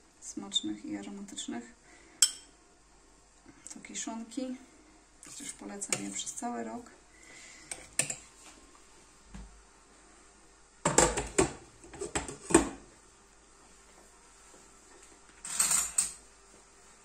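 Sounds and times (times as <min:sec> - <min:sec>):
dishes and cutlery clattering: 0:15.4 - 0:16.2.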